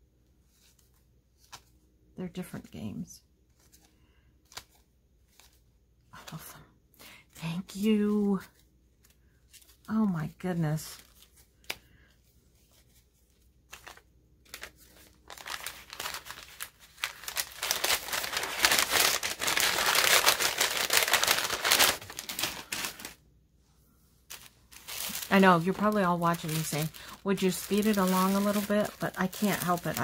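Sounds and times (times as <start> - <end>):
paper crinkling: 3.5 - 6.6, 8.3 - 23.2, 24.3 - 30.0.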